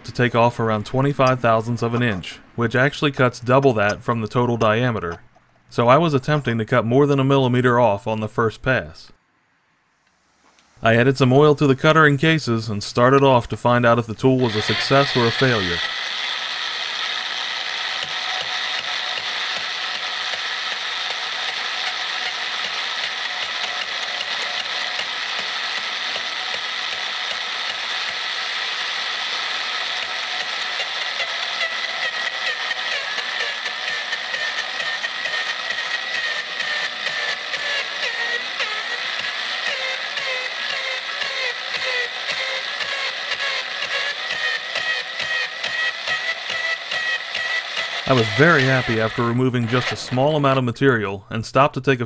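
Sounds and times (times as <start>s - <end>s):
electric drill boring metal: 14.2s - 50.6s
rapid chattering clicks: 14.4s - 50.1s.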